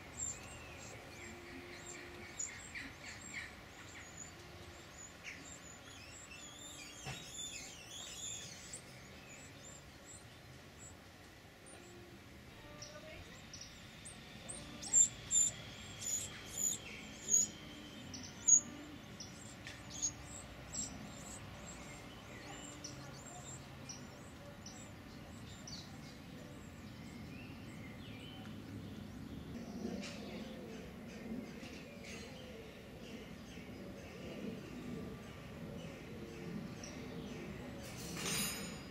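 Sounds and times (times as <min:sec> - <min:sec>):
nestlings cheeping: 0:12.6 - 0:25.8.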